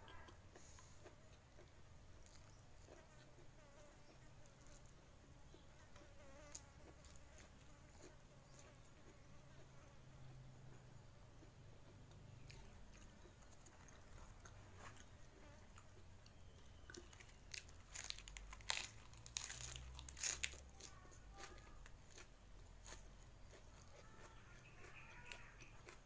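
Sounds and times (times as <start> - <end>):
cabbage leaf crunching: 16.9 - 26.0.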